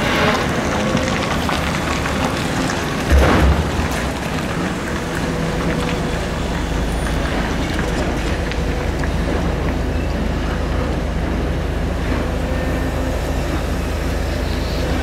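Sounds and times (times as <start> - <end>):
excavator engine and hydraulics: 0.0 - 15.0
heavy thud: 3.1 - 4.2.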